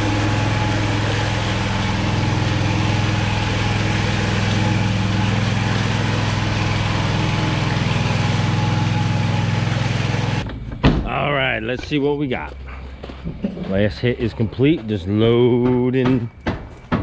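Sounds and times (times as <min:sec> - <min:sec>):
power trowel engine running: 0:00.0 - 0:10.6.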